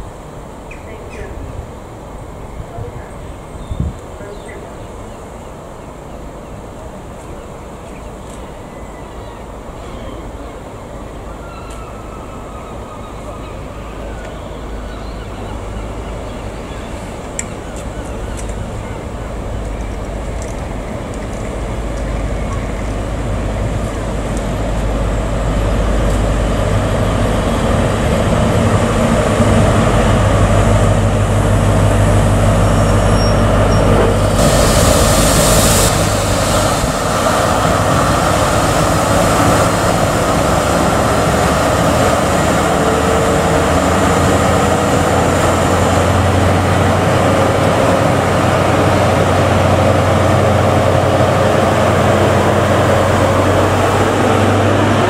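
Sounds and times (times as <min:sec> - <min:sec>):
diesel train engine droning: 0:08.6 - 0:55.0
loud hiss: 0:32.8 - 0:40.7.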